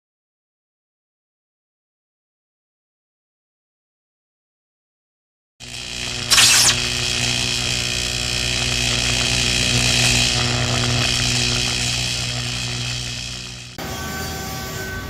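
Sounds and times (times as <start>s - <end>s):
electric arc buzzing and crackling: 5.7s - 13.8s.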